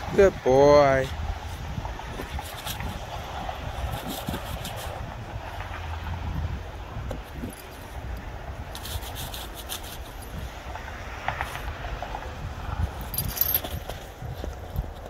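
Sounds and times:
snow crunching and scraping: 0:00.9 - 0:15.0
metal collar tags jingling: 0:12.9 - 0:14.9.

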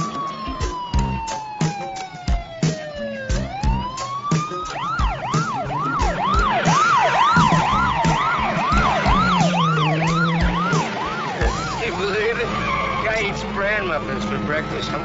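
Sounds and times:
second higher siren: 0:00.0 - 0:11.9
police siren wailing and yelping: 0:00.0 - 0:15.0
car engines: 0:02.8 - 0:15.0.

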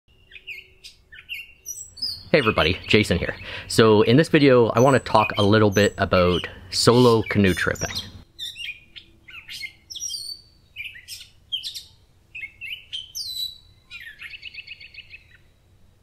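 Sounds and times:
rapid bird trill: 0:00.1 - 0:15.6
songbirds chirping and singing: 0:00.1 - 0:15.6.

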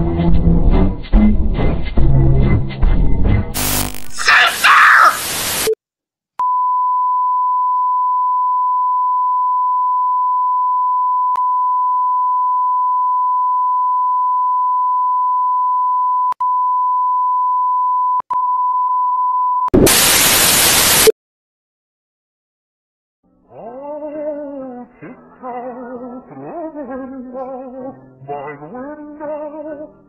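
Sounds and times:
electronic test tone: 0:03.6 - 0:04.2
television static burst: 0:03.6 - 0:05.8, 0:19.8 - 0:21.1.

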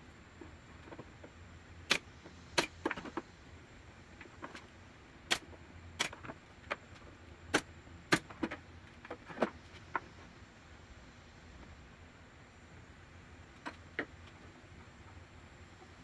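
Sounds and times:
nail gun clacks: 0:05.3 - 0:06.3.

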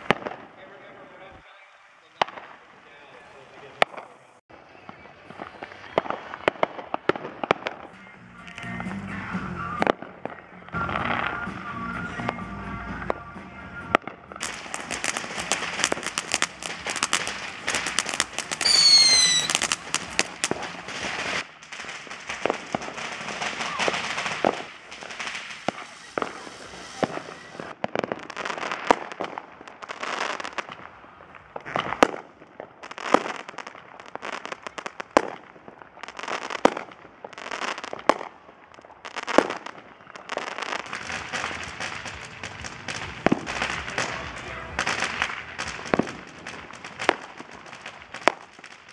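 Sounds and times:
firecracker pops and crackles: 0:00.0 - 0:00.9, 0:02.2 - 0:02.7, 0:03.6 - 0:48.9
hissing ground fountains: 0:00.0 - 0:48.9
shrill firework whistle: 0:18.6 - 0:20.3, 0:23.5 - 0:24.6, 0:25.6 - 0:27.8.

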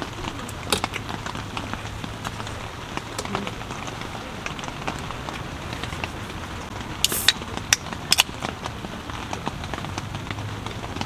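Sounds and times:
rain on tent fabric: 0:00.0 - 0:11.0
drink can opening fizz: 0:07.0 - 0:08.3.

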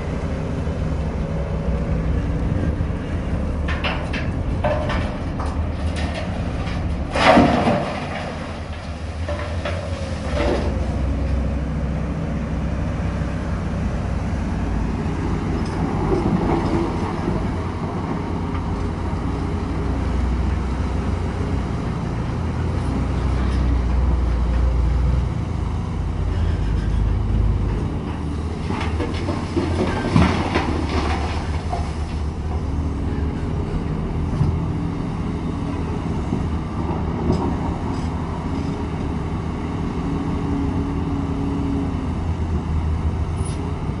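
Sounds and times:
excavator engine rumbling: 0:00.0 - 0:44.0
rock dropping into steel truck bed: 0:03.8 - 0:10.8.

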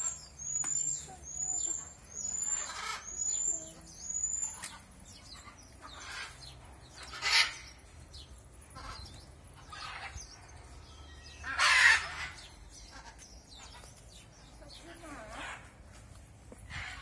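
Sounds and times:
bird squawking harshly: 0:11.4 - 0:12.4.

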